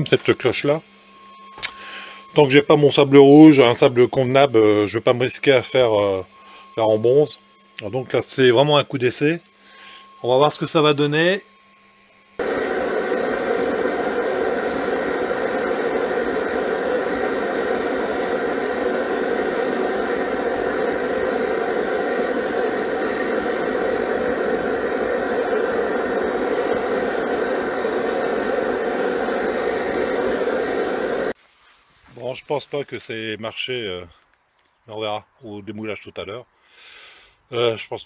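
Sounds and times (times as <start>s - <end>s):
steady mechanical drone: 1.5s - 31.4s.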